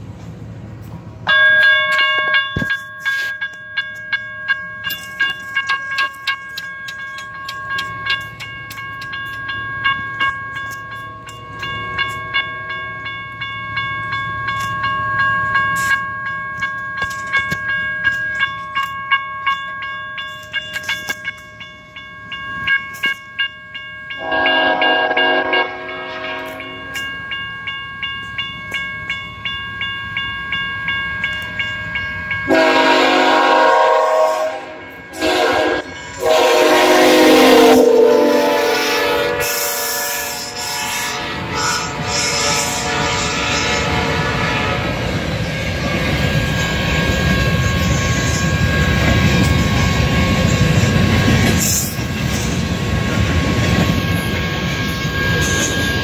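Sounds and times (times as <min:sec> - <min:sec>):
crossing warning bell ringing: 0:00.8 - 0:56.0
locomotive air horn blast: 0:24.2 - 0:26.8, 0:32.5 - 0:45.0.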